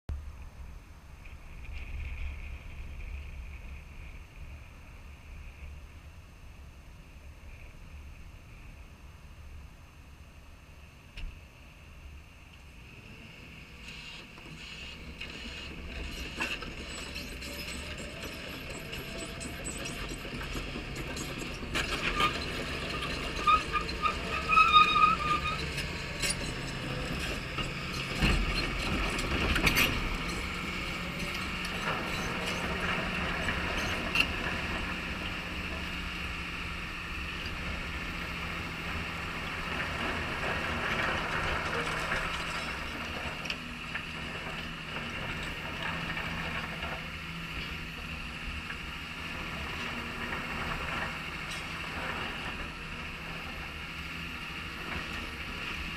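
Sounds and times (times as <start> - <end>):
excavator diesel engine running: 11.5 - 55.9.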